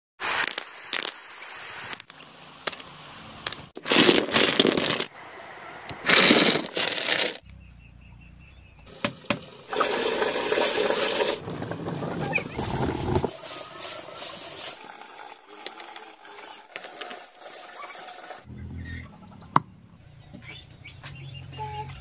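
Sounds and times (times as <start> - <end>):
stones clattering on concrete: 0.4 - 1.2, 1.9 - 5.1
wet mortar sliding: 9.7 - 17.2.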